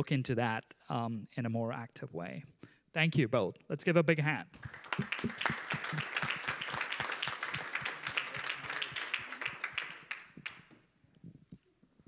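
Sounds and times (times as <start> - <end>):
audience applauding: 4.6 - 10.7.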